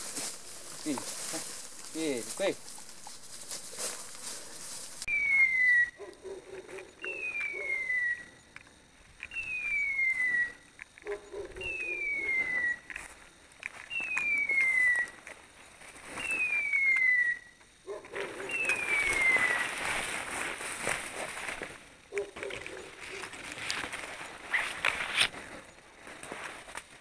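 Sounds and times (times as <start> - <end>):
rustling through undergrowth: 0.0 - 6.4, 12.9 - 16.8, 18.1 - 27.0.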